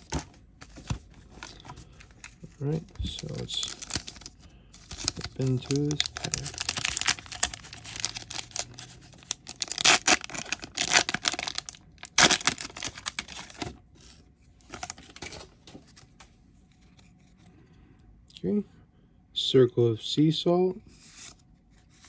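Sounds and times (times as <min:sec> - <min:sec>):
cards rustling: 0:00.0 - 0:17.2
foil wrapper tearing and crinkling: 0:03.2 - 0:13.7.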